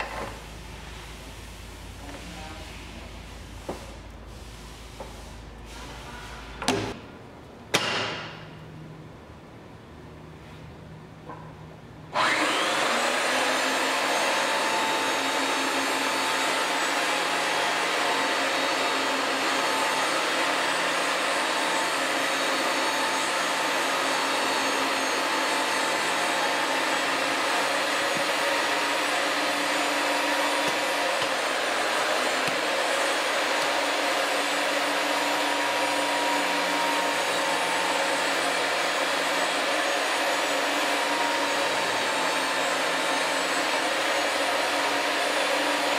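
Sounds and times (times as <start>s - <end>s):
pipe threading machine whine: 12.1s - 45.9s.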